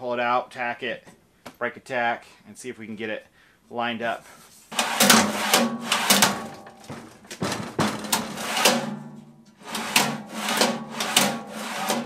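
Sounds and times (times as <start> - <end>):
steel drawer clanking and rattling: 4.8 - 12.0.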